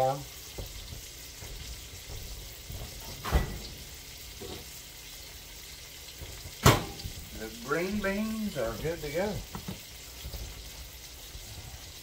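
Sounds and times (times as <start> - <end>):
food sizzling in oil: 0.0 - 12.0
sharp clunk: 6.6 - 7.1.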